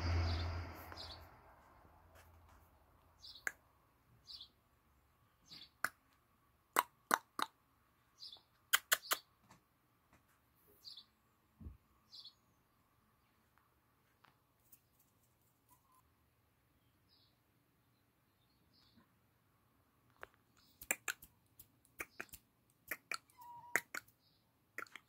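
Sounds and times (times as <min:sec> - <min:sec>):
birds chirping: 0:00.0 - 0:01.4.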